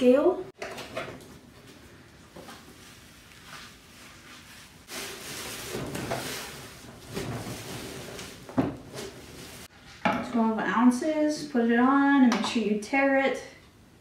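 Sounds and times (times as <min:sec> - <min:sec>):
plastic bag rustling: 0:02.6 - 0:09.7.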